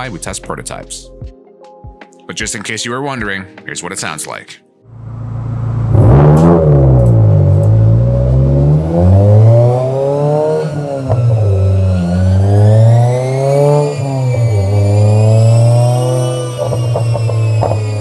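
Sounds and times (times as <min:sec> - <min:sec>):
car exhaust revving: 0:04.9 - 0:18.0.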